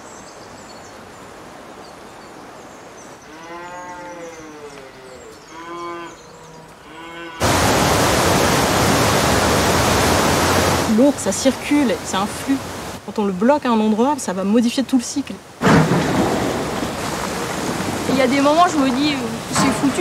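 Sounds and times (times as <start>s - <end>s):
cattle mooing: 3.4s - 7.5s.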